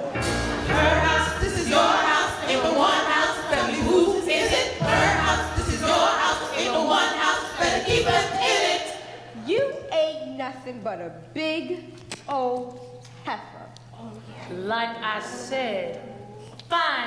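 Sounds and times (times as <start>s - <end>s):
low beats: 0.0s - 9.0s
stage musical accompaniment: 0.0s - 9.1s
voices singing together: 0.6s - 9.4s.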